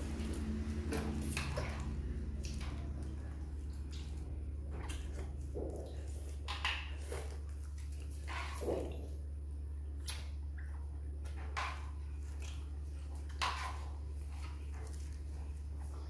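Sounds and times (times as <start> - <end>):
steady low hum: 0.0 - 16.0
wet squishing sounds: 0.0 - 16.0.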